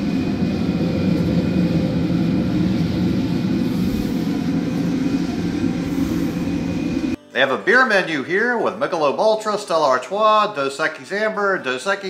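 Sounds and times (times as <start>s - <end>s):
coffee roaster motor whirring: 0.0s - 7.2s.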